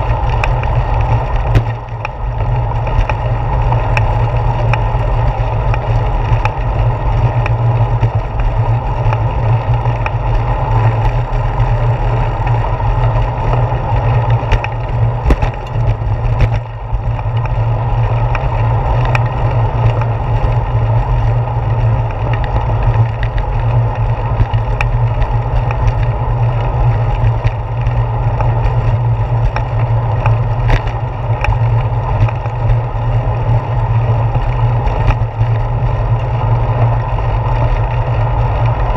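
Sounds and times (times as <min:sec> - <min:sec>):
bicycle road vibration: 0:00.0 - 0:38.9
wind rumble: 0:00.0 - 0:38.9
sharp clicks and knocks: 0:00.2 - 0:02.2, 0:13.5 - 0:17.6.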